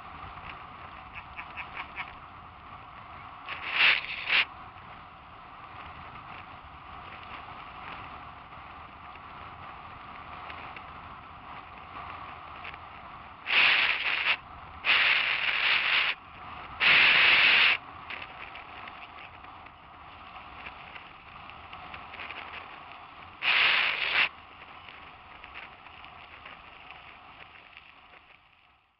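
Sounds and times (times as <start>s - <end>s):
rushing wind: 0.0s - 28.4s
rubbing on microphone: 3.5s - 4.4s
tyre noise on gravel: 3.5s - 4.4s.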